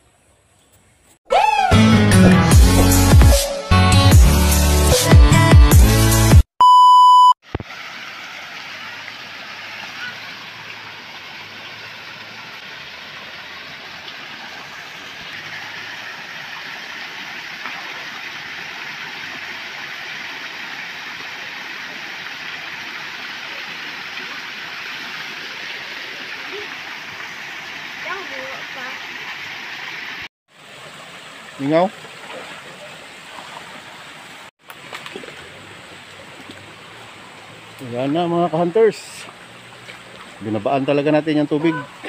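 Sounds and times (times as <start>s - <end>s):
short electronic beep: 6.6s - 7.4s.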